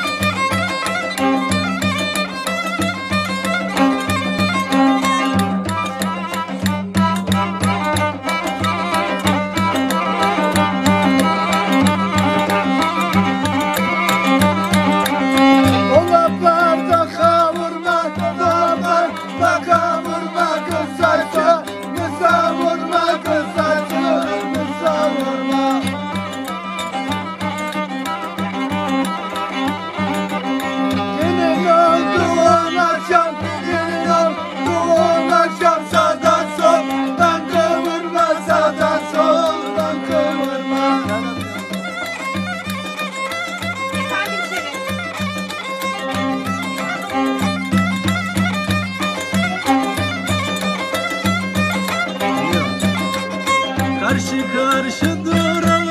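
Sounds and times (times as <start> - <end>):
frame drum beat: 0.0 - 55.9
violin folk dance tune: 0.0 - 55.9
men singing: 15.8 - 26.0, 31.1 - 41.2, 54.0 - 55.9.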